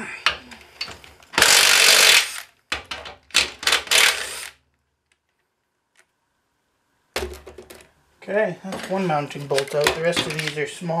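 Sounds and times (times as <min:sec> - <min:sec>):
cordless drill rattly bursts: 0:01.4 - 0:02.5, 0:03.6 - 0:04.6.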